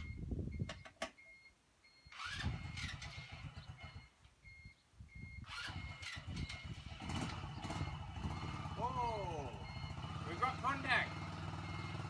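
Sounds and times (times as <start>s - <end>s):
engine cranking on starter: 2.1s - 4.1s, 5.4s - 8.8s.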